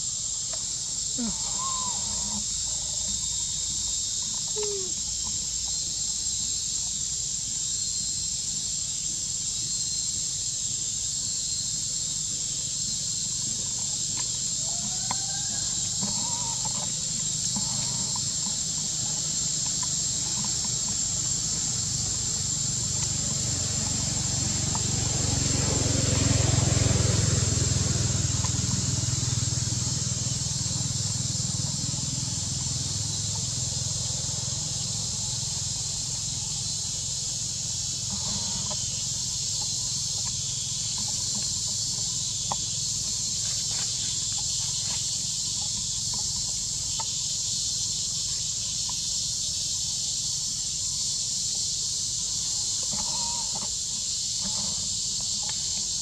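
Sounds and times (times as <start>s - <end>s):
high-pitched insect drone: 0.0s - 56.0s
faint short calls: 1.1s - 3.1s, 4.2s - 5.4s.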